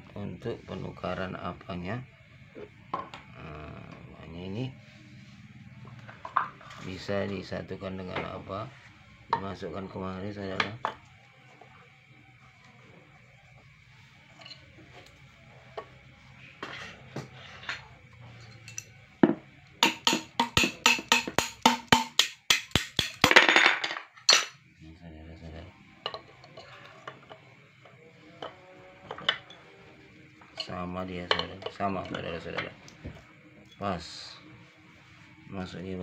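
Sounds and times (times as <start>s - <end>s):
metal parts knocking and clinking: 18.4s - 24.6s.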